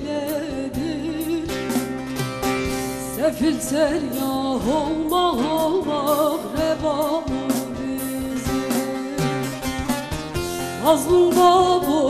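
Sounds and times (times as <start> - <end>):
long-necked lute picked with plectrum: 0.3 - 12.0.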